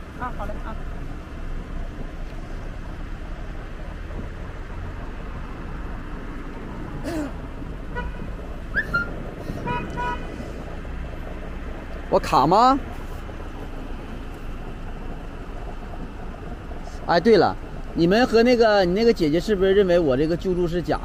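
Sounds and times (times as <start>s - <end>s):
street traffic rumble: 0.0s - 21.0s.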